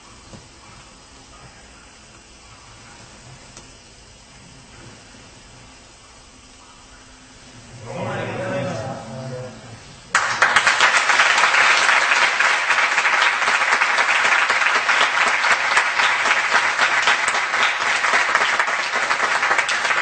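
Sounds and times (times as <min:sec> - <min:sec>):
group of people clapping: 0:10.1 - 0:20.0.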